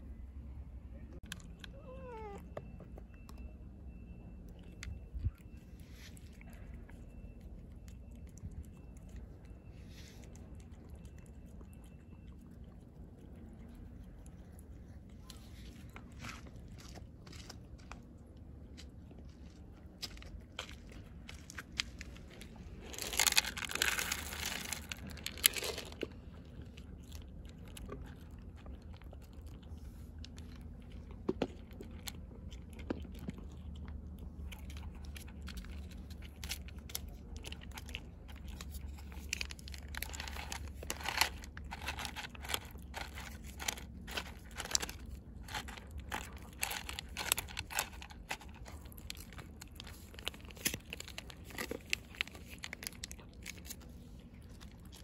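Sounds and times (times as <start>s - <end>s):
cat crunching dry kibble: 1.2s - 55.0s
plastic pouch crinkling: 21.8s - 26.1s, 35.5s - 55.0s.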